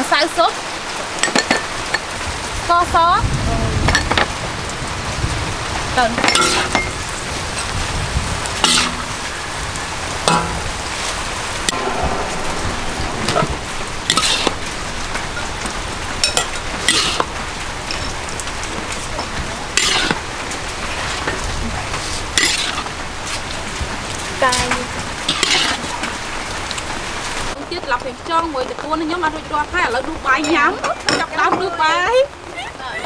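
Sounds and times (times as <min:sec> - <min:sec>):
metal spatula scraping a wok: 0:14.1 - 0:14.6, 0:19.8 - 0:20.2, 0:22.4 - 0:22.9
greens sizzling in a wok: 0:16.2 - 0:23.6.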